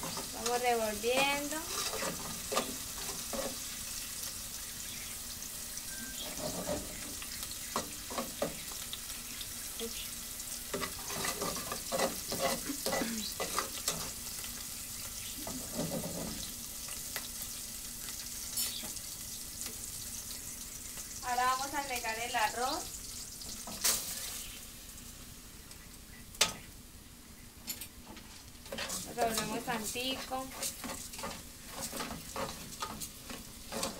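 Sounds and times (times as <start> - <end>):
food sizzling in hot oil: 0.0 - 27.4, 28.0 - 33.9
spoon scraping a metal pot: 1.2 - 3.6, 6.2 - 7.0, 10.8 - 14.1, 28.7 - 33.9.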